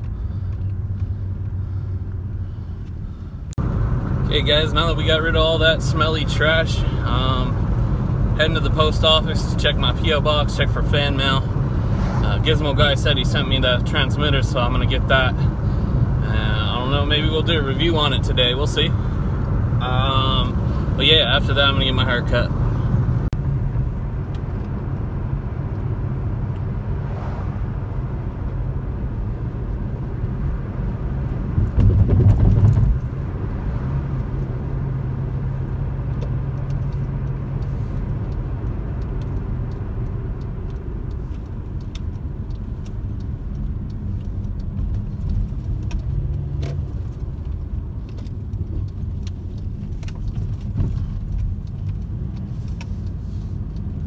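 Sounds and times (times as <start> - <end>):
car engine and tyre rumble: 0.0 - 54.0
faint clicking rattles: 35.5 - 54.0.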